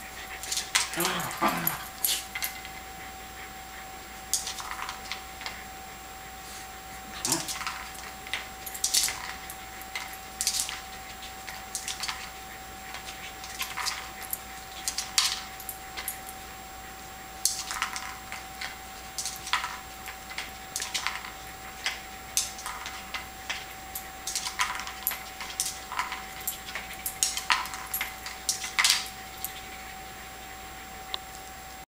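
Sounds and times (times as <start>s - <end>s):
treat rattling inside toy: 7.2s - 10.9s.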